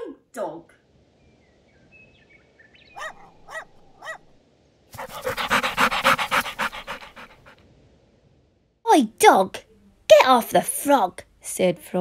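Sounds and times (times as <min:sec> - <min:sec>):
dog barking: 0:03.0 - 0:04.4, 0:05.0 - 0:07.5
dog panting loudly: 0:05.0 - 0:07.6.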